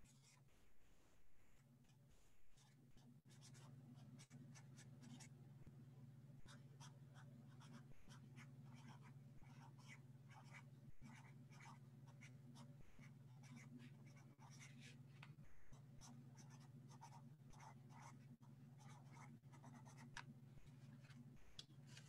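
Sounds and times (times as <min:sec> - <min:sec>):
steady low hum: 0:00.0 - 0:22.0
pen scratching on paper: 0:02.6 - 0:05.3, 0:06.5 - 0:18.2, 0:18.8 - 0:20.2.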